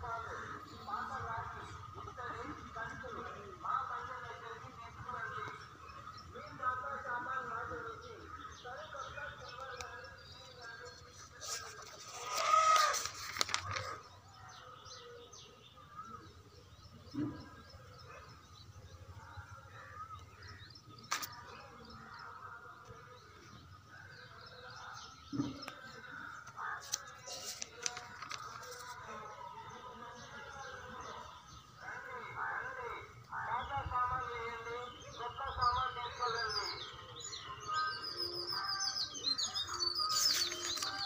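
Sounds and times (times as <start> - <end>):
birds chirping: 0.0 - 41.0
paper pages rustling: 11.3 - 14.0, 21.1 - 21.4, 26.8 - 29.1, 40.0 - 41.0
bird call sliding pitch: 11.4 - 14.0.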